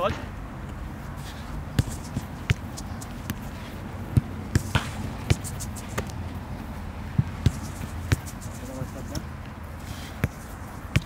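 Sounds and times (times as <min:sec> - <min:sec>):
football being kicked: 0:01.8 - 0:03.5, 0:04.1 - 0:06.2, 0:07.1 - 0:08.4, 0:10.2 - 0:11.0.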